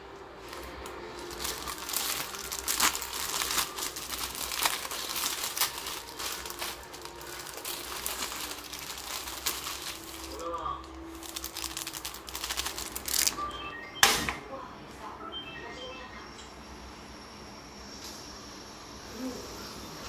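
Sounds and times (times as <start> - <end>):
plastic packet crinkling: 0.4 - 13.4.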